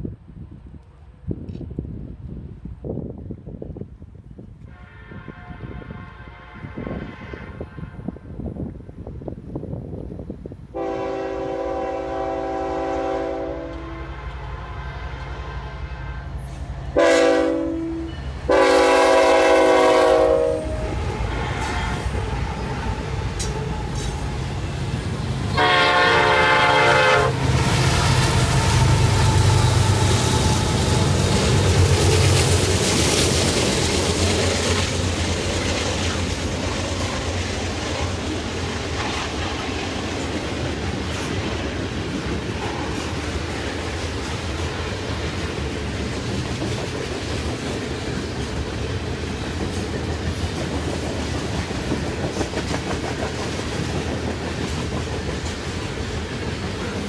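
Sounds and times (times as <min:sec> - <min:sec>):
train horn blasts: 0:04.6 - 0:08.4, 0:10.7 - 0:24.3, 0:25.5 - 0:31.3
locomotive engine rumble: 0:10.8 - 0:44.0
train cars clattering on rails: 0:29.8 - 0:57.0.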